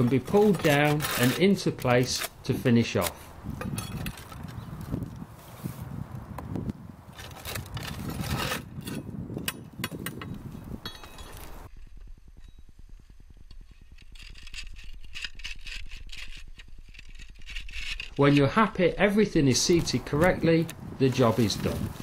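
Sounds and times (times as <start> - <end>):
roof tiles scraping and clacking: 0.0 - 4.6, 19.5 - 22.0.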